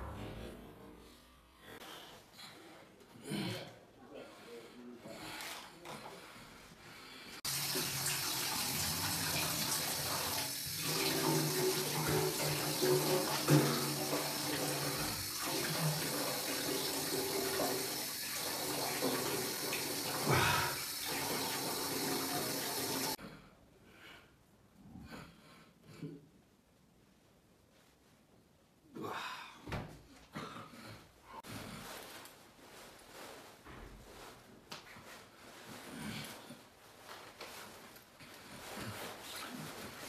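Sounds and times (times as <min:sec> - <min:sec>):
hands washing splashing: 0:07.4 - 0:23.2.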